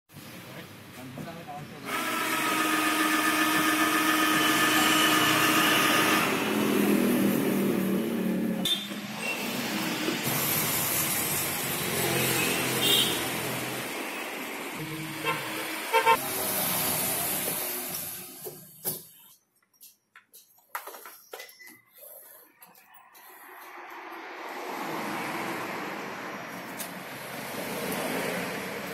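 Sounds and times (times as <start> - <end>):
cordless drill boring plastic: 1.8 - 6.5.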